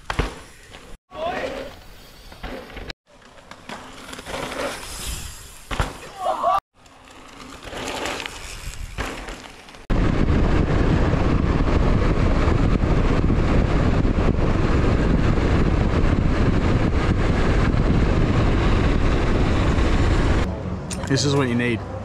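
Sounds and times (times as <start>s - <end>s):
bike tyres rumbling on trail: 0.0s - 20.5s
wind buffeting microphone: 9.9s - 20.5s.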